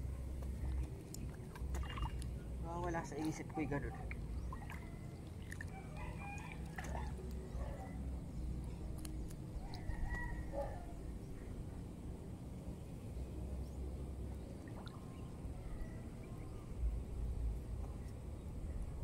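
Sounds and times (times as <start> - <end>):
steady low rumble: 0.0 - 19.0
rooster crowing: 5.7 - 6.9, 9.6 - 11.0.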